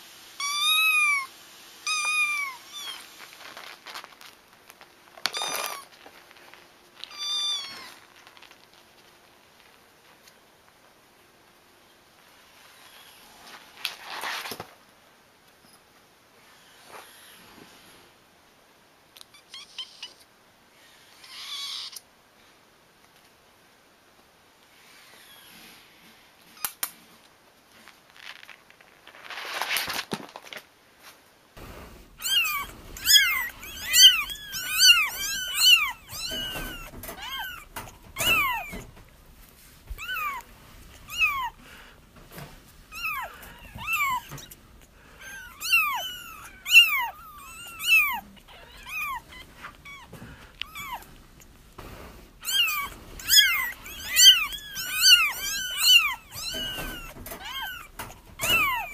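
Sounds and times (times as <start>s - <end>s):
kittens mewing: 7.0s - 8.2s, 21.0s - 22.1s, 32.0s - 39.2s, 39.9s - 58.9s
brief rustle: 12.7s - 14.8s, 26.4s - 41.5s.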